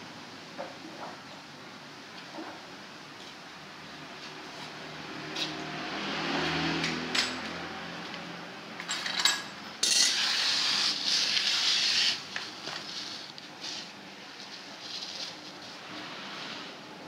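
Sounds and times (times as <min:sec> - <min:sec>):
metal tools clinking: 0:08.8 - 0:10.2.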